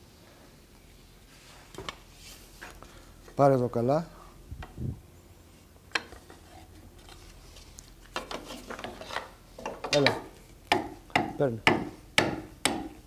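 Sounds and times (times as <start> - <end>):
wooden batten knocking on wood: 9.9 - 13.0.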